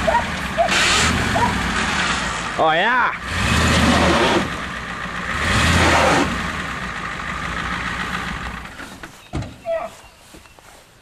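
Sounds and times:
truck engine revving hard: 0:00.0 - 0:08.8.

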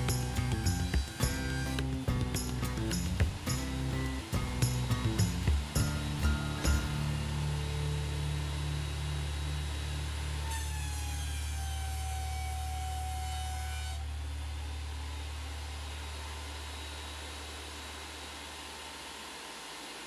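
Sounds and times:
benchtop planer running: 0:00.0 - 0:13.8
board passing through planer whine: 0:00.0 - 0:14.9.

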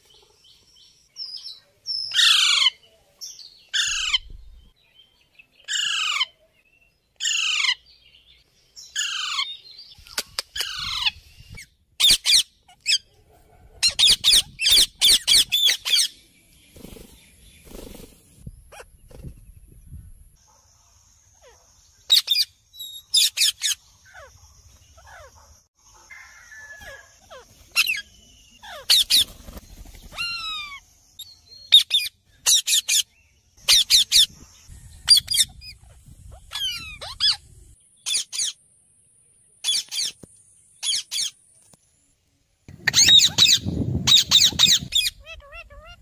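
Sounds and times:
parakeets screeching: 0:02.2 - 0:02.7, 0:05.7 - 0:06.3, 0:07.2 - 0:07.8, 0:09.0 - 0:09.5, 0:28.6 - 0:29.4, 0:30.1 - 0:30.8, 0:35.1 - 0:37.4, 0:42.7 - 0:46.0.

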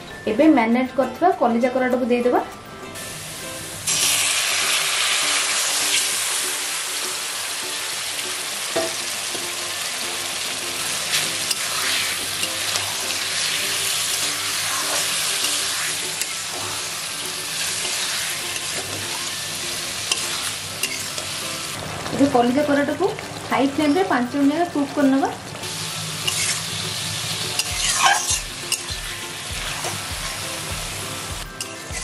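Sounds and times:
meat sizzling in hot oil: 0:03.0 - 0:32.0
metal spatula scraping pan: 0:10.8 - 0:16.8, 0:20.0 - 0:21.4, 0:26.2 - 0:26.7, 0:27.5 - 0:28.9.

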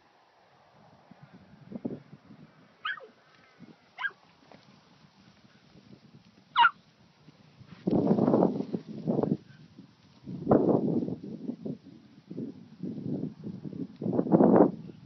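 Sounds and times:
puppy yipping: 0:02.8 - 0:03.1, 0:04.0 - 0:04.2, 0:06.6 - 0:06.8.

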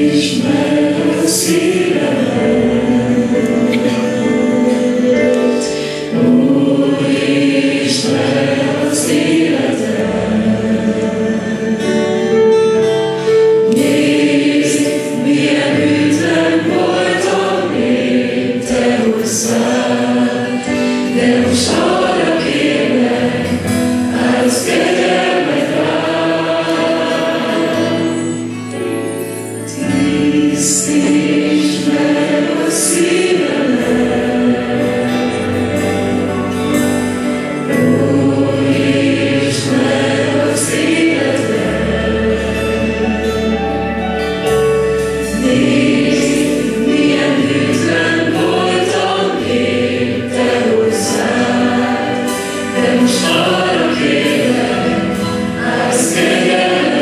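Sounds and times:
people singing into microphones: 0:00.0 - 0:57.0
strummed acoustic guitar: 0:00.0 - 0:57.0
drums: 0:29.0 - 0:57.0.

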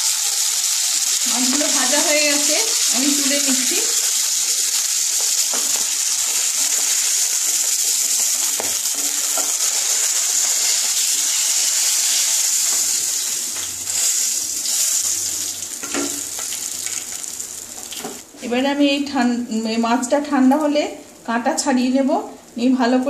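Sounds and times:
oil sizzling in frying pan: 0:00.0 - 0:18.3.

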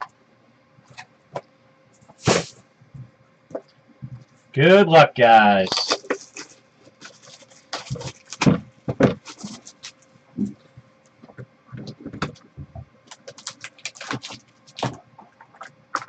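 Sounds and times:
packs rustling: 0:05.6 - 0:08.5, 0:09.1 - 0:10.0.

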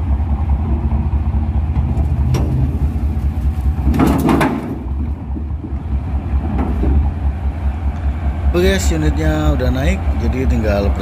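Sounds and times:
excavator diesel engine running: 0:00.0 - 0:11.0
metal clanking: 0:01.7 - 0:07.3.

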